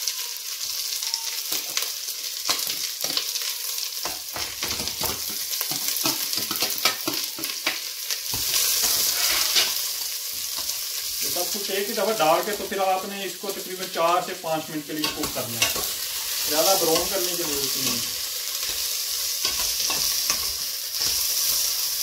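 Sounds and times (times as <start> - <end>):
vegetables sizzling in hot oil: 0.0 - 22.0
pot being stirred: 2.5 - 11.6, 15.0 - 21.9
metal spoon clinking and scraping: 8.3 - 10.8, 15.0 - 21.6.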